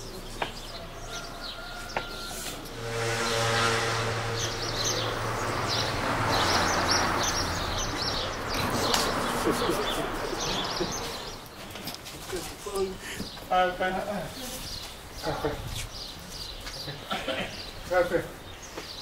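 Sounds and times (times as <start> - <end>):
motor vehicle passing by: 1.0 - 11.5
small birds chirping: 6.3 - 19.0.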